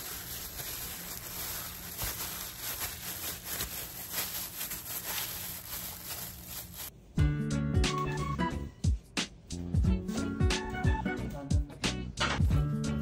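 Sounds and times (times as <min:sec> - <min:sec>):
plastic gloves crinkling: 0:00.0 - 0:07.0.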